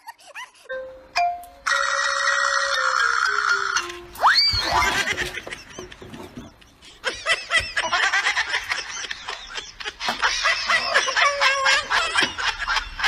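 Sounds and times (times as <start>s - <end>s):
laughter: 0.0s - 0.7s, 4.8s - 13.0s.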